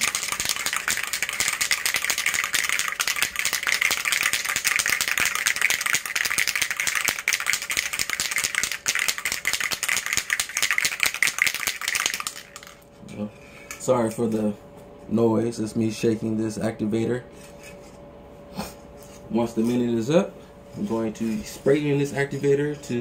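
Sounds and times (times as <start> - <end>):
spray can rattling: 0.0 - 12.8.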